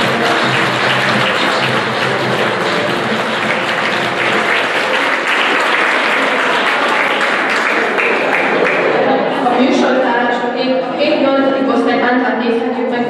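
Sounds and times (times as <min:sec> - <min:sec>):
children applauding: 0:00.0 - 0:09.2.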